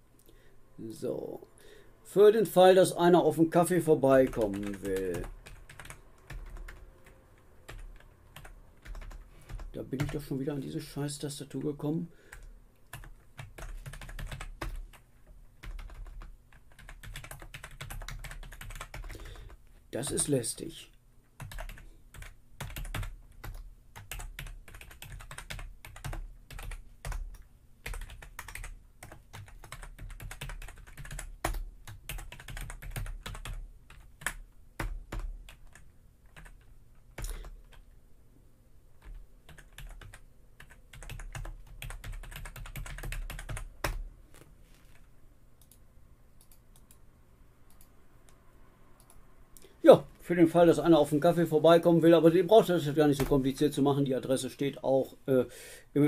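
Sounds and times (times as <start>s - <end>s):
typing on computer keyboard: 4.2s - 6.8s, 7.7s - 10.2s, 12.3s - 15.0s, 15.6s - 19.6s, 21.4s - 37.8s, 39.0s - 44.0s.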